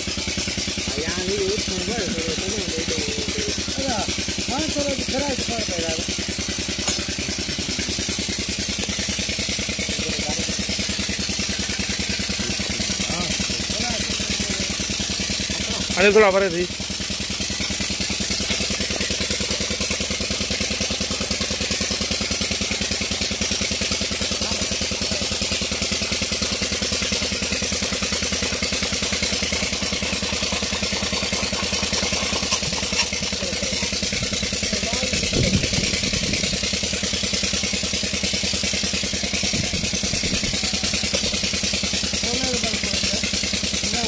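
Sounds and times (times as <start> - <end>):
diesel engine running: 0.0 - 44.0
voices: 0.8 - 6.1, 12.3 - 16.7, 32.6 - 36.3, 42.1 - 44.0.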